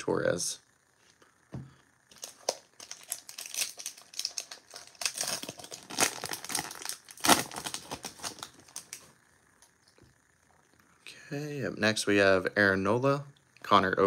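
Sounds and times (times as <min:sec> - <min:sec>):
plastic wrapper crinkling and tearing: 0:02.1 - 0:09.1.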